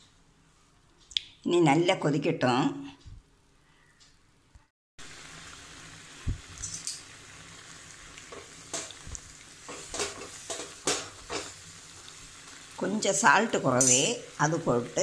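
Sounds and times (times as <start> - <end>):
food bubbling and sizzling in a pan: 5.0 - 15.0.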